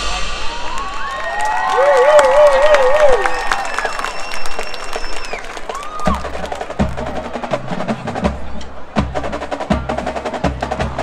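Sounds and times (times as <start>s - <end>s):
deep drum hits: 0.0s - 1.7s.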